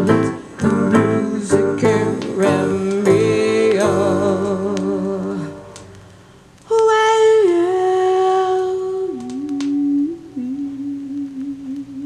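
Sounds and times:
person humming long notes: 6.7s - 12.0s.

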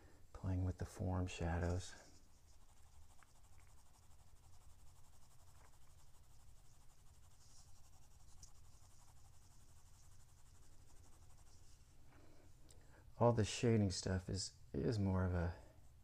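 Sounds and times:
pencil scratching on paper: 1.4s - 11.9s
light pencil ticks: 3.1s - 3.8s.

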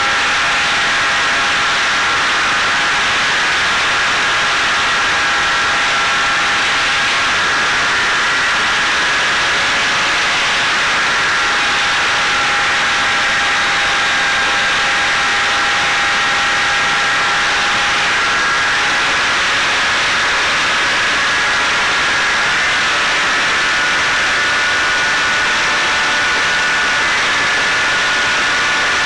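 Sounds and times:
electric motor and propeller whine: 0.0s - 29.0s.

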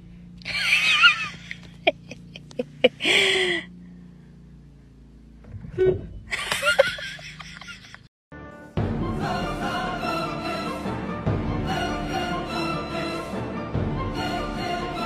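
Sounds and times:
person laughing breathily: 0.4s - 3.8s.

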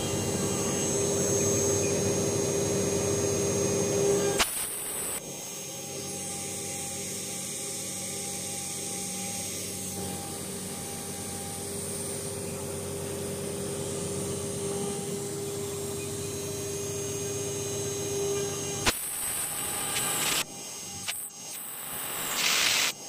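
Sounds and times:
engraving spindle whine: 0.0s - 23.0s
bit cutting into metal: 4.3s - 5.2s, 17.3s - 23.0s.

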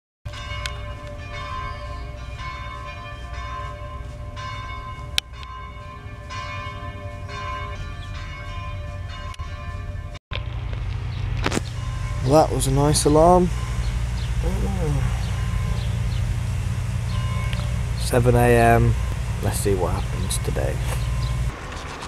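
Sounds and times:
church bell tolling: 0.3s - 10.2s, 11.6s - 21.5s
steady low rumble: 7.3s - 21.6s.

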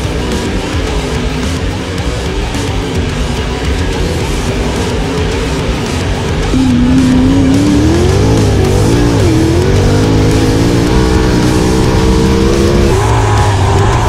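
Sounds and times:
background guitar music: 0.0s - 14.0s
race car engine: 0.0s - 14.0s.

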